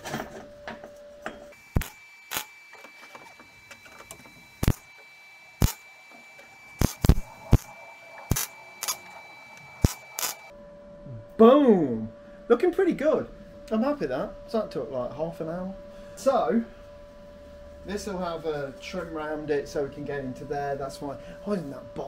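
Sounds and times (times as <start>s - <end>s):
arc welder bursts: 1.5s - 10.5s.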